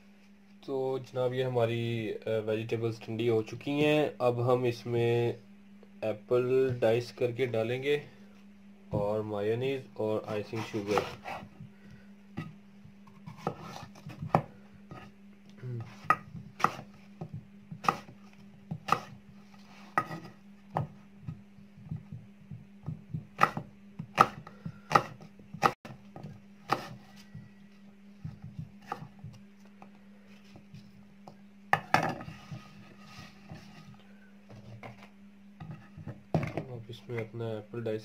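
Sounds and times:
steady low hum: 0.0 - 38.0
knife chopping on wooden board: 10.8 - 11.5, 13.2 - 15.1, 15.8 - 19.2, 19.9 - 22.2, 22.8 - 27.1, 28.2 - 29.4.

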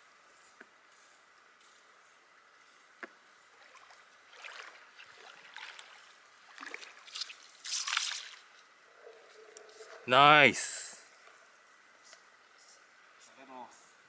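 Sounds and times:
faint steady hiss: 0.0 - 14.0
sea water splashing: 3.6 - 10.1.

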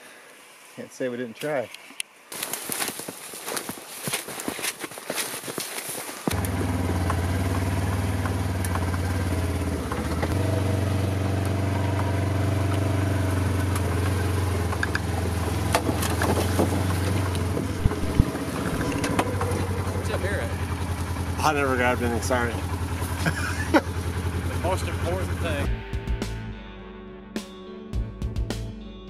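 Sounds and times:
footsteps: 1.8 - 6.4, 17.6 - 19.6
vehicle engine running: 6.3 - 25.7.

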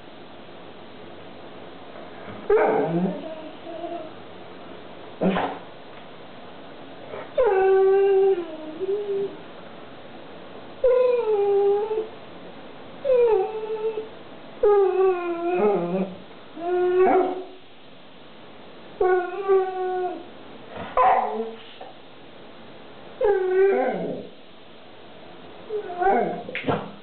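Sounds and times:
dog howling and whining: 2.4 - 4.2, 7.1 - 9.4, 10.8 - 12.1, 13.0 - 17.6, 19.0 - 20.3, 23.2 - 24.4, 25.6 - 26.5.

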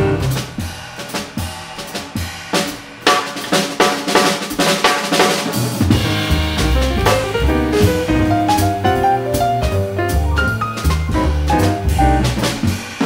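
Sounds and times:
upright bass: 0.0 - 0.5, 5.9 - 12.7
piano: 0.0 - 1.1, 5.0 - 13.0
jazz drum solo: 0.0 - 13.0.

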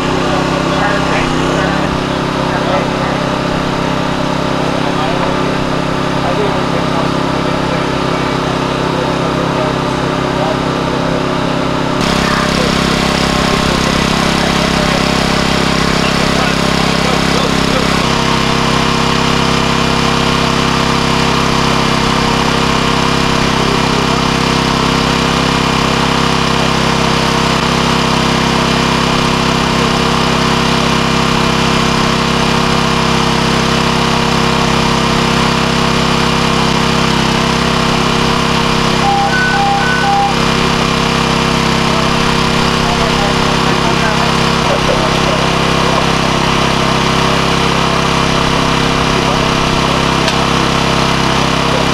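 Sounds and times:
small petrol engine running: 0.0 - 51.9
short beeps: 38.9 - 40.6.

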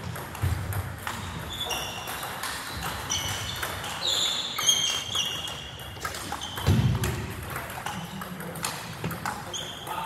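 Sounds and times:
table tennis balls clicking: 0.0 - 10.0
shoe squeaks: 1.1 - 6.9, 9.5 - 10.0.

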